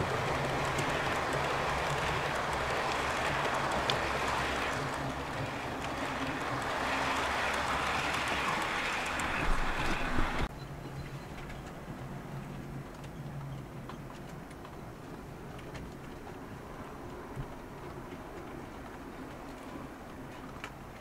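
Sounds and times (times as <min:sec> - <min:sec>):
model train wheels rattling: 0:00.0 - 0:10.5.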